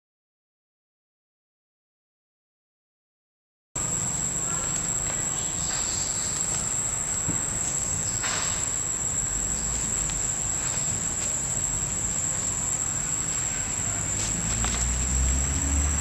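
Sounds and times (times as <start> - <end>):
high-pitched insect drone: 3.8 - 16.0.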